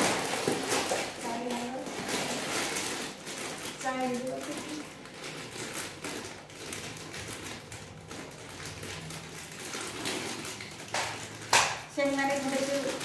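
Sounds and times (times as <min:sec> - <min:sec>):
grocery packet rustling: 0:00.0 - 0:13.0.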